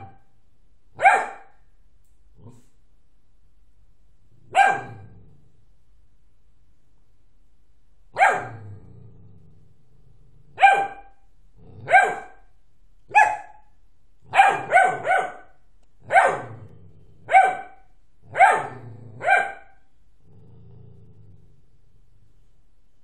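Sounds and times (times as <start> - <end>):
dog barking: 0.0 - 0.3, 1.0 - 1.6, 4.5 - 5.1, 8.1 - 8.6, 10.6 - 11.2, 11.8 - 12.5, 13.1 - 13.7, 14.3 - 16.6, 17.3 - 19.8.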